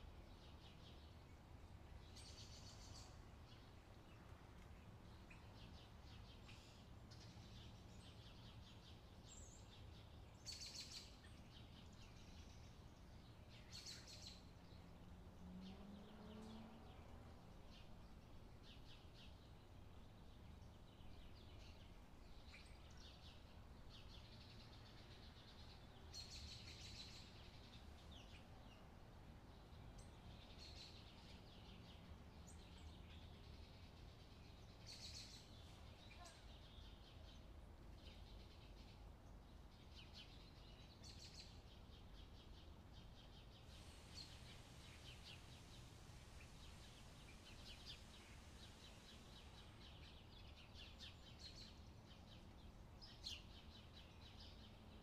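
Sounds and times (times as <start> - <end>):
faint high bird chirps: 32.6 - 37.4.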